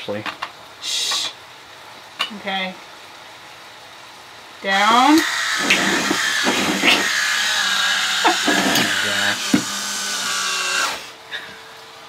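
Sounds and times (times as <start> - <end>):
electric wine opener whirring: 4.8 - 11.2.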